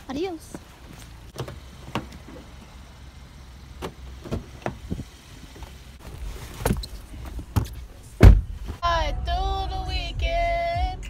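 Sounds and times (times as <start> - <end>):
car door opening: 1.3 - 2.6, 3.7 - 8.8.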